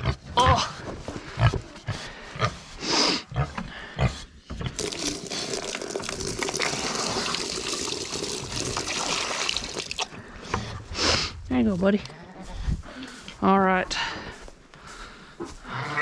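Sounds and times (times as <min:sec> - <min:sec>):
water pouring from a pail: 0:04.8 - 0:10.2.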